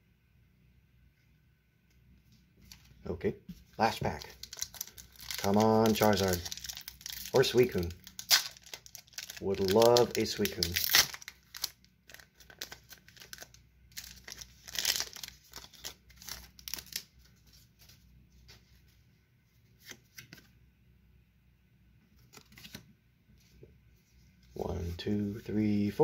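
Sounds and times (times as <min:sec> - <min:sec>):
foil wrapper crinkling and tearing: 0:03.8 - 0:17.2.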